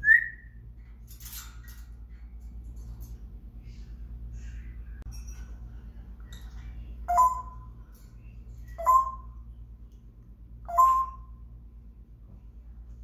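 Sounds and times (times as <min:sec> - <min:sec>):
parrot calls: 0:08.7 - 0:09.4, 0:10.7 - 0:11.4.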